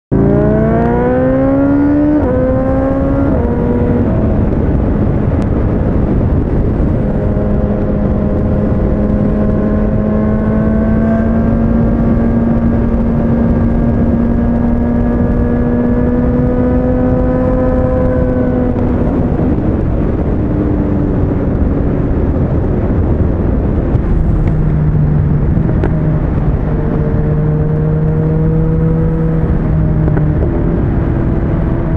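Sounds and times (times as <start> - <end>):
motorcycle engine revving: 0.1 - 31.9
wind noise: 0.1 - 31.9.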